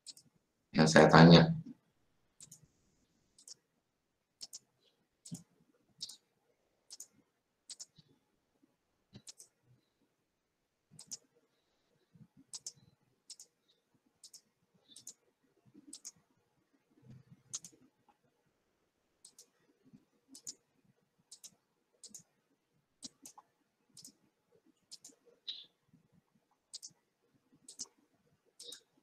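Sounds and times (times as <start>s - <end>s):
computer mouse clicks: 0.0s - 0.3s, 2.4s - 2.7s, 3.4s - 3.6s, 4.4s - 6.2s, 6.9s - 8.1s, 9.1s - 9.5s, 11.0s - 11.3s, 12.5s - 13.6s, 14.2s - 15.2s, 15.8s - 16.2s, 17.1s - 17.8s, 19.2s - 19.6s, 20.3s - 20.6s, 21.3s - 22.3s, 23.0s - 24.2s, 24.9s - 25.7s, 26.7s - 27.0s, 27.6s - 28.0s, 28.6s - 28.9s.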